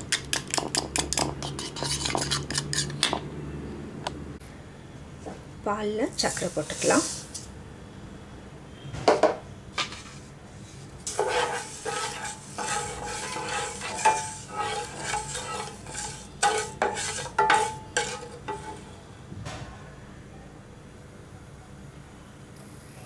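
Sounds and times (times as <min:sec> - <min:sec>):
spatula scraping metal saucepan: 0:01.0 - 0:03.0, 0:10.7 - 0:19.0.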